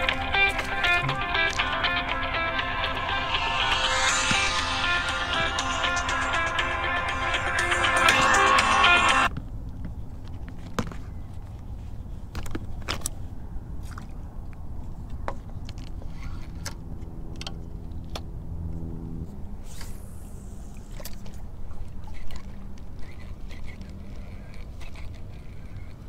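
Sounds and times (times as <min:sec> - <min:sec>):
background music: 0:00.0 - 0:09.3
low hum: 0:00.0 - 0:09.3
low rumble: 0:00.0 - 0:09.3.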